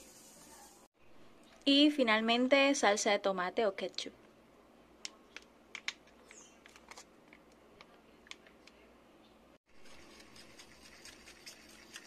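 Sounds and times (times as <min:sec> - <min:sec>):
fork stirring in a bowl: 0:09.7 - 0:12.0.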